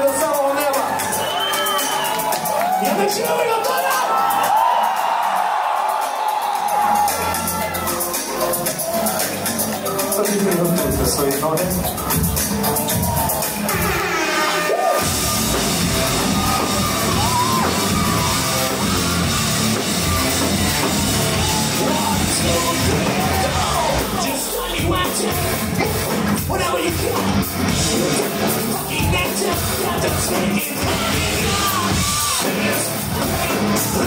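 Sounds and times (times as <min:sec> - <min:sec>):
live rock band playing: 0:05.0 - 0:34.0
person singing: 0:21.4 - 0:34.0.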